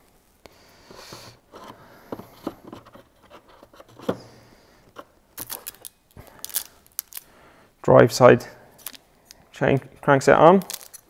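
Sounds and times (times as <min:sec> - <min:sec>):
parts handled in cardboard box: 0:00.9 - 0:07.2, 0:10.6 - 0:11.0.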